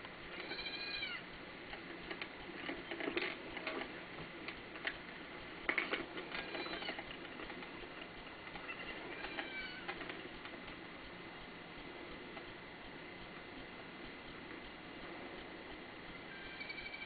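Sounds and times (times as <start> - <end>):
steady hiss: 0.0 - 17.0
baby goat call: 0.4 - 1.2, 8.6 - 9.9, 16.3 - 17.0
sharp clicks and taps: 1.7 - 16.2.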